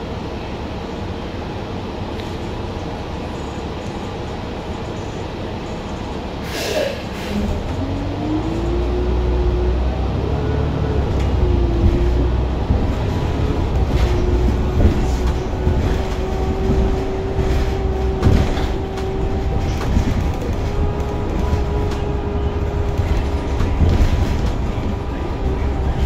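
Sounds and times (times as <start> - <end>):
bus engine rumble: 0.0 - 26.0
drivetrain whine: 7.3 - 26.0.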